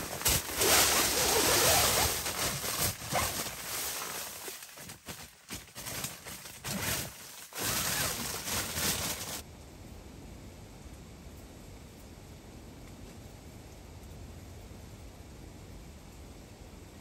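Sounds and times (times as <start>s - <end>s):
tent fabric rustling: 0.0s - 9.4s.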